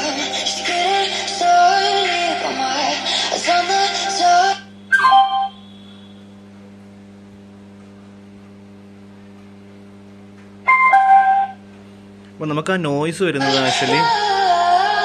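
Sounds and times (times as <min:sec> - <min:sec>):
low mains hum: 0:00.0 - 0:15.0
short electronic chime: 0:04.9 - 0:05.7, 0:10.7 - 0:11.6.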